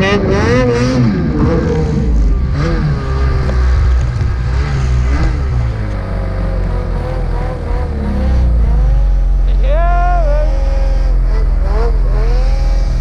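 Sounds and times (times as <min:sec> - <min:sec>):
snowmobile engine revving: 0:00.0 - 0:13.0.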